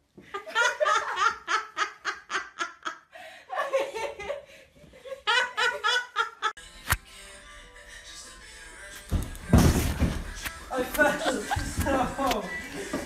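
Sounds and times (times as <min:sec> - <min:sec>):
person laughing hard: 0:10.8 - 0:12.3.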